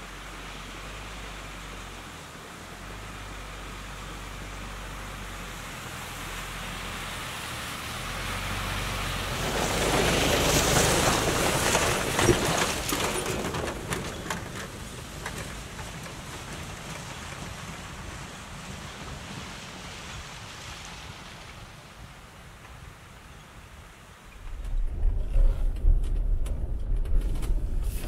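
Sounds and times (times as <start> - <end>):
vehicle engine rumble: 0.0 - 22.3, 23.9 - 28.0
tyre noise on snow: 9.2 - 15.2, 24.4 - 28.0
crackles: 24.3 - 28.0.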